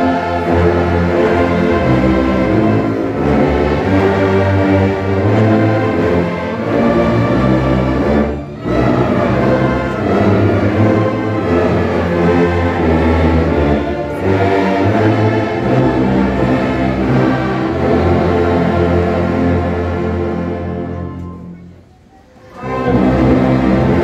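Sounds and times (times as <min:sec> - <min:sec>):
low brass ensemble sustained chords: 0:00.0 - 0:24.0.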